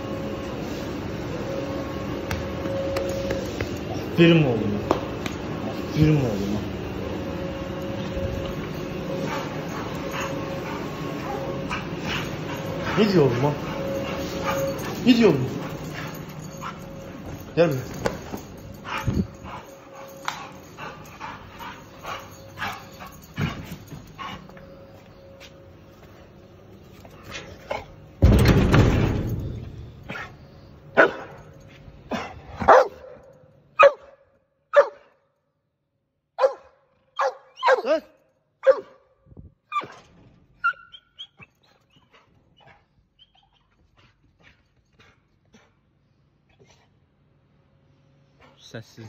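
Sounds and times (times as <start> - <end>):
dog moving about: 7.8 - 25.6
dog barking: 31.0 - 31.4, 32.6 - 33.2, 33.8 - 35.2, 36.4 - 39.1.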